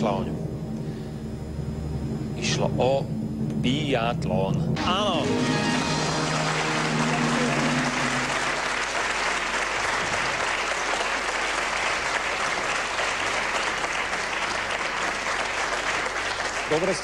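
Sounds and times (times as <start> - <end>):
audience applauding: 5.3 - 17.0.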